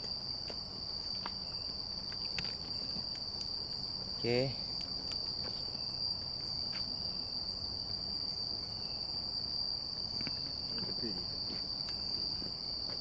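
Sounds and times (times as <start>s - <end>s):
crickets chirping drone: 0.0s - 13.0s.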